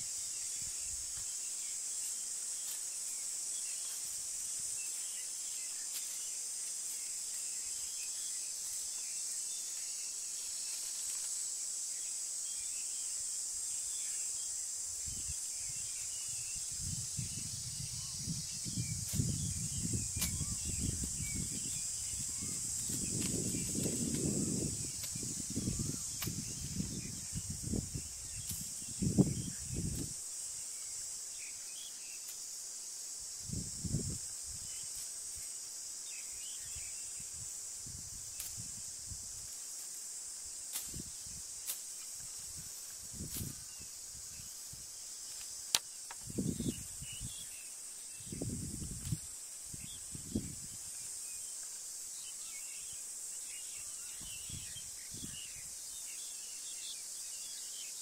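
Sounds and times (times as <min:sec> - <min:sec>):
high insect drone: 0:00.0 - 0:58.0
faint chirps: 0:12.0 - 0:32.4.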